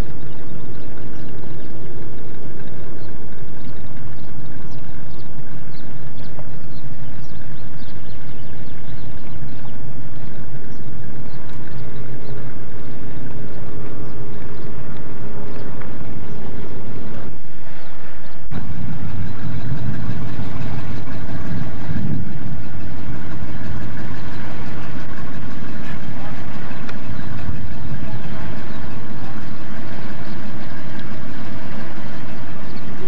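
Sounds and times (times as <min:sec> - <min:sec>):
pickup truck engine running: 0:10.4 - 0:33.0.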